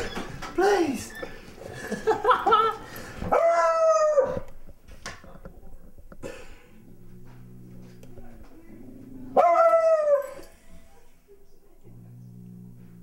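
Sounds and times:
dog yelping: 3.3s - 4.4s, 9.4s - 10.4s
dog baying: 6.8s - 11.1s.

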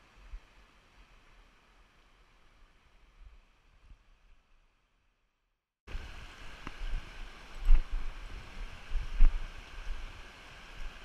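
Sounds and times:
stream rushing over rocks: 5.9s - 11.0s.

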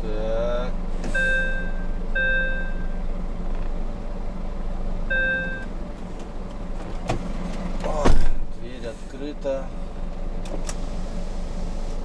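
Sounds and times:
engine humming: 0.0s - 12.0s
warning beeper: 5.1s - 5.7s.

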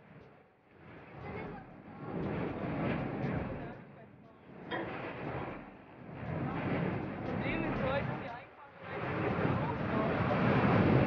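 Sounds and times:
wind on microphone: 4.5s - 11.0s.

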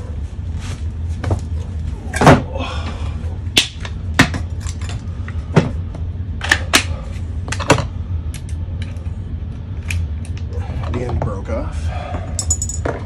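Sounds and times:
steady low hum: 0.0s - 13.0s
hand tools clattering: 12.4s - 13.0s.

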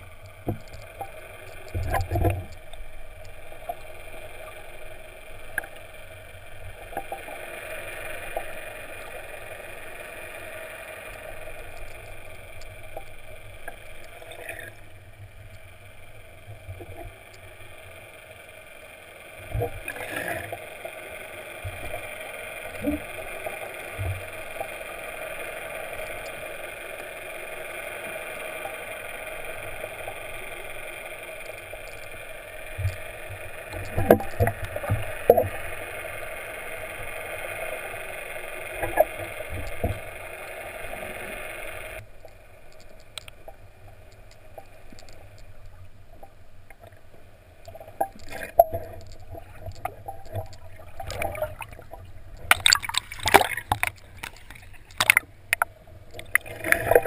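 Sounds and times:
underwater boat engine hum: 0.0s - 57.0s
water splashing: 47.6s - 57.0s.

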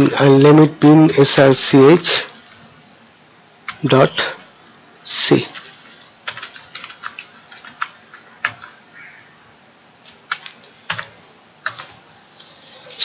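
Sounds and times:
computer keyboard typing: 3.7s - 3.9s, 5.4s - 9.3s, 10.0s - 12.0s.

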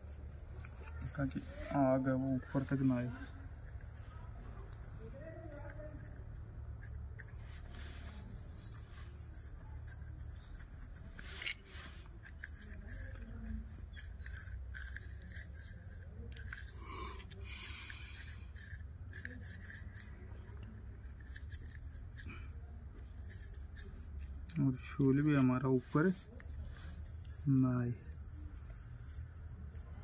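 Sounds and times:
paper rustling and scraping: 0.0s - 6.2s, 7.2s - 20.1s.

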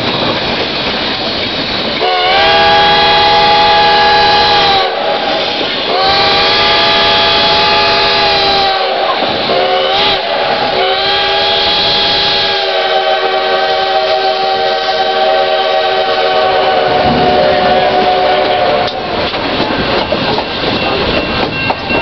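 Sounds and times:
train cars clattering over rails: 0.0s - 12.7s, 16.3s - 22.0s
steam whistle chord: 2.0s - 19.2s.

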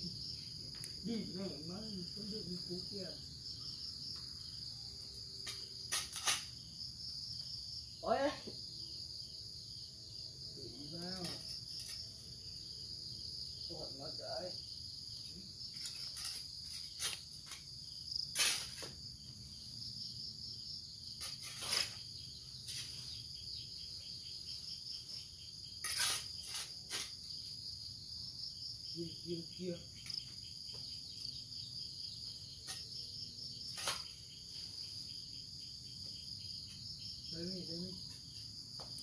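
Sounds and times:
insects chirring: 0.0s - 39.0s
hand tool scraping soil: 5.4s - 6.6s, 15.7s - 19.0s, 21.2s - 23.3s, 25.8s - 27.3s, 33.7s - 34.3s.

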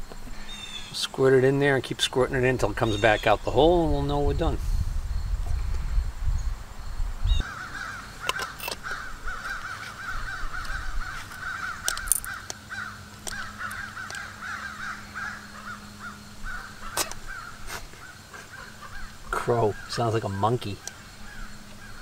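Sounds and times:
crow calling: 0.3s - 1.0s, 2.8s - 3.5s, 7.3s - 22.0s.

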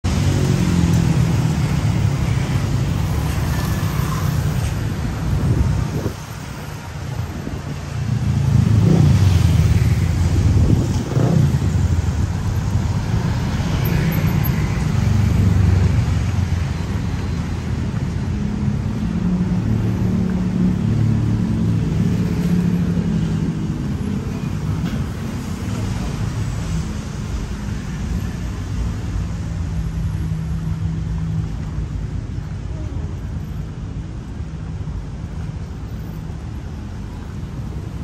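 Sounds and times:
large engine running and revving: 7.9s - 17.1s, 17.7s - 27.6s.

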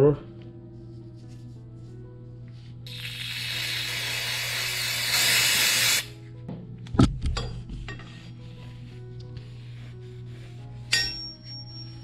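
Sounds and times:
background music: 0.0s - 12.0s
aerosol spray can hissing: 2.9s - 6.1s.

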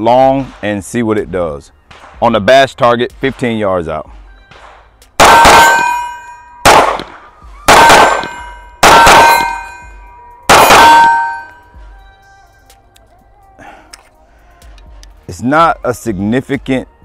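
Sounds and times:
pistol shots: 1.9s - 2.4s, 4.5s - 9.9s, 10.5s - 11.6s
steel target ringing: 5.2s - 11.7s.

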